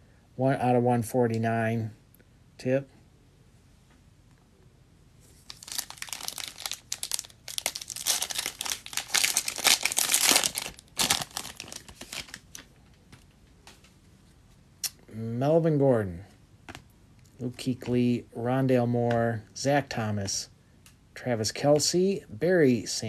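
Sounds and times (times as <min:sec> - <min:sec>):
light rustles of cards: 0:05.2 - 0:14.6
foil wrapper tearing and crinkling: 0:05.4 - 0:12.6.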